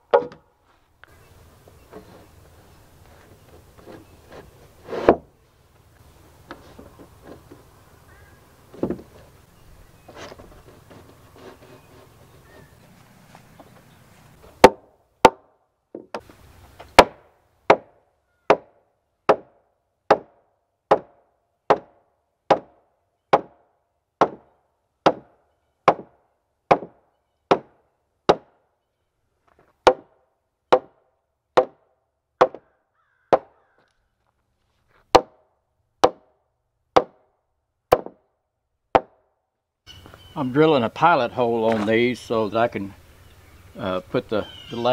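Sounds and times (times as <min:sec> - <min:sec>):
sledge hammer striking wood: 0:00.0 - 0:00.5, 0:14.6 - 0:16.3, 0:16.9 - 0:23.6, 0:24.2 - 0:28.6, 0:29.8 - 0:31.0, 0:31.6 - 0:32.7, 0:33.3 - 0:33.6, 0:35.1 - 0:35.4, 0:36.0 - 0:36.4, 0:37.0 - 0:37.3, 0:37.9 - 0:38.3, 0:38.9 - 0:39.2.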